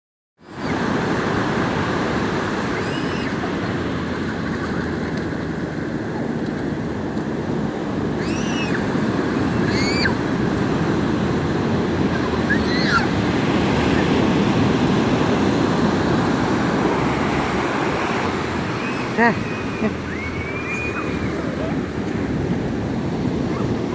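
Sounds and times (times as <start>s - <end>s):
ocean surf breaking: 0.4s - 23.9s
children crying out: 8.2s - 8.9s, 9.6s - 10.2s, 12.2s - 13.2s, 18.7s - 21.8s.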